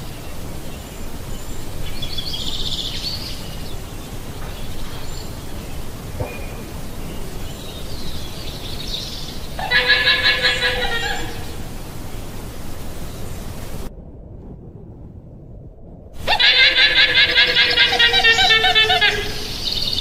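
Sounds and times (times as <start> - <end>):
outdoor background noise: 0.0 - 20.0
faint high-pitched calls: 8.2 - 11.8, 16.2 - 20.0.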